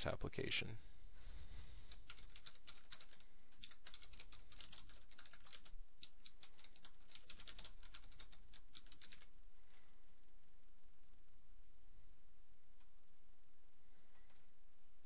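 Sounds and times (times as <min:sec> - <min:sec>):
typing on computer keyboard: 0:01.9 - 0:09.3.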